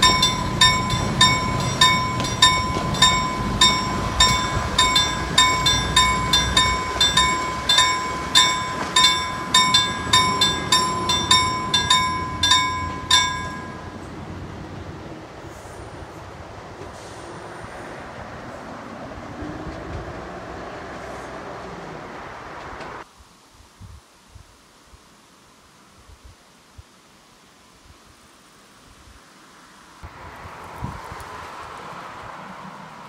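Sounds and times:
level crossing warning bell: 0:00.0 - 0:14.2
train rumbling past: 0:00.0 - 0:23.0.

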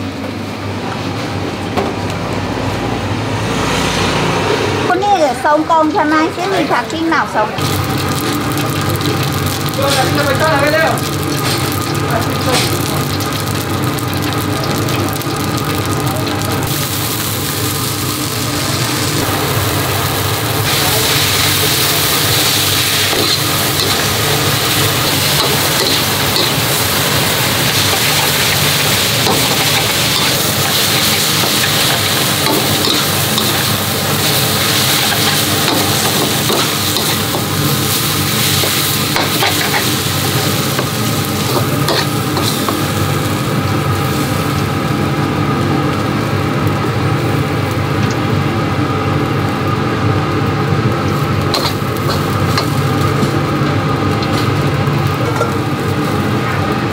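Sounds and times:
food sizzling in a wok: 0:05.0 - 0:56.9
metal spatula scraping and clattering: 0:41.5 - 0:42.7.

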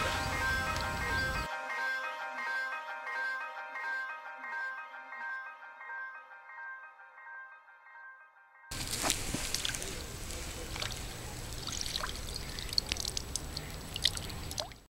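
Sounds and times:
pond water splashing and dripping: 0:00.0 - 0:01.5, 0:08.7 - 0:14.9
small splashes and ticks: 0:08.7 - 0:14.9.

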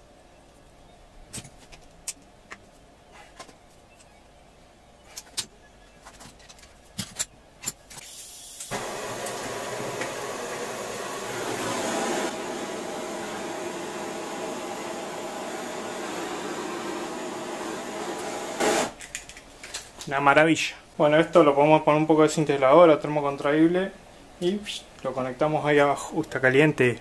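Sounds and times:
gas torch hissing: 0:08.0 - 0:19.0.

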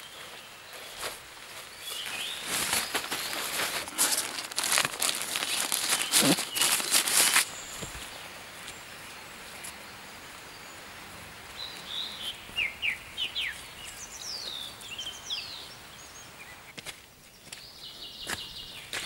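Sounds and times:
footsteps on path: 0:00.0 - 0:08.8, 0:16.7 - 0:19.0
songbirds chirping and whistling: 0:00.0 - 0:19.0.

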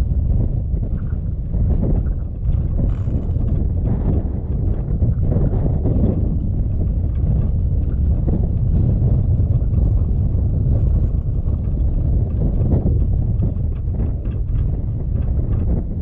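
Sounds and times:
wind buffeting microphone: 0:00.0 - 0:16.0
vehicle on gravel road: 0:00.5 - 0:05.5, 0:06.2 - 0:15.6.

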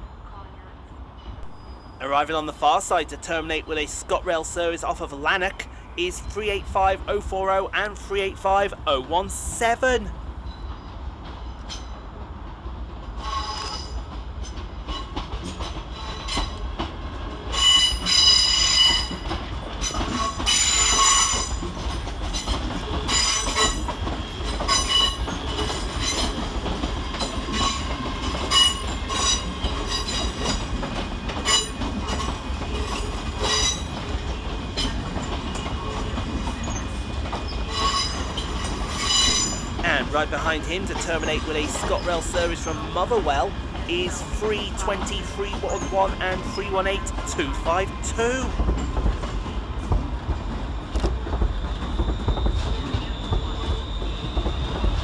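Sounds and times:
low train rumble: 0:00.0 - 0:55.0
train wheels squealing: 0:01.2 - 0:02.2, 0:10.4 - 0:12.0, 0:13.2 - 0:16.6, 0:17.5 - 0:26.4, 0:27.1 - 0:30.7, 0:31.4 - 0:39.8, 0:50.8 - 0:55.0.

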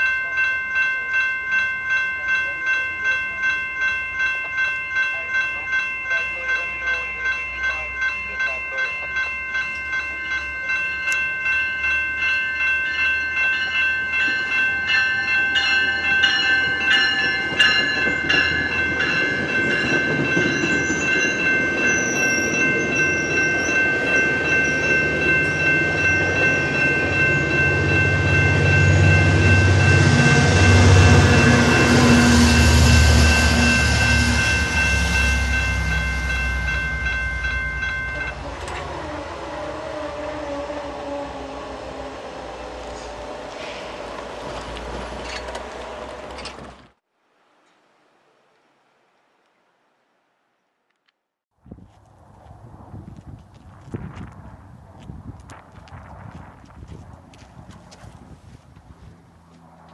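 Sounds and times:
level crossing warning bells: 0:00.0 - 0:46.6
train rumble and wheel noise: 0:00.0 - 0:47.0.

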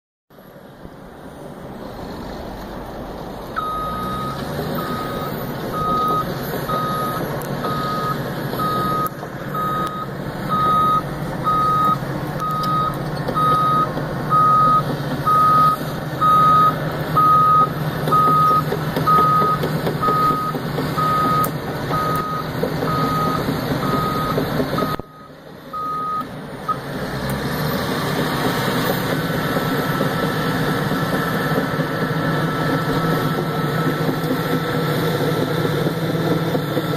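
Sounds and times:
bulldozer engine running: 0:00.4 - 0:36.9
reversing alarm beeping: 0:03.6 - 0:26.8, 0:32.4 - 0:33.4.

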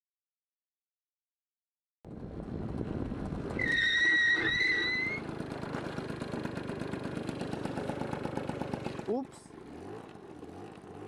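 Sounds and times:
motor scooter running: 0:02.1 - 0:11.0
high brake squeal: 0:03.6 - 0:05.3.

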